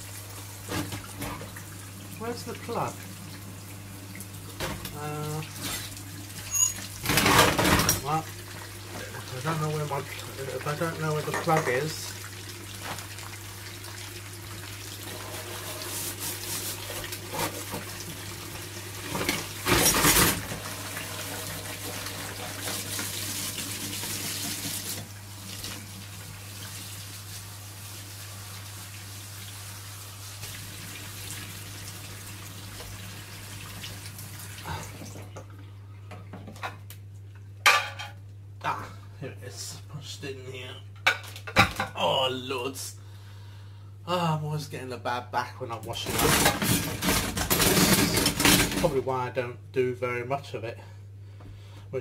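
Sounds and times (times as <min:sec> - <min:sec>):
tap running into a sink: 0:19.0 - 0:25.9
loud splash or clatter: 0:19.1 - 0:20.6, 0:46.1 - 0:48.8.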